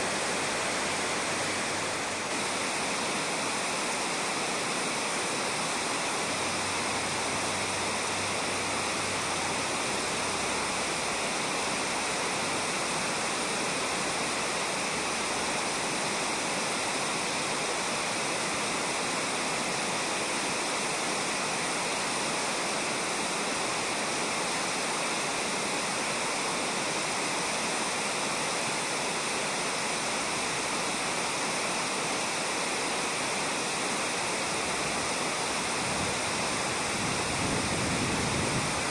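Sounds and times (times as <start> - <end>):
river running over gravel: 0.0 - 38.9.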